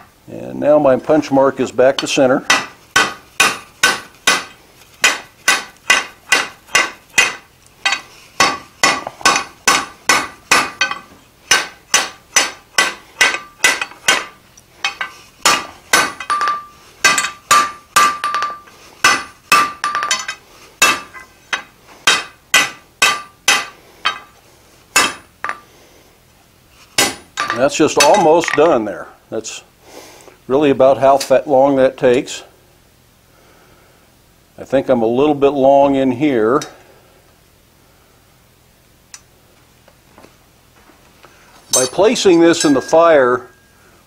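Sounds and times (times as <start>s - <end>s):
hammer striking iron on anvil: 2.0s - 24.3s, 25.0s - 25.6s, 27.0s - 28.6s, 41.7s - 43.7s.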